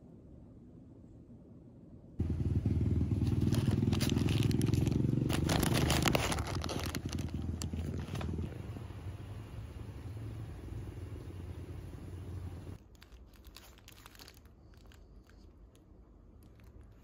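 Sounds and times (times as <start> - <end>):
vehicle engine running: 2.2 - 12.8
paper bag crinkling: 3.2 - 8.5, 12.8 - 17.0.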